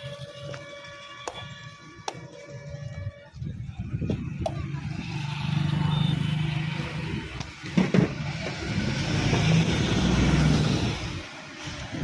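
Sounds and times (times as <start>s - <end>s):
vehicle engine passing by: 4.6s - 12.0s.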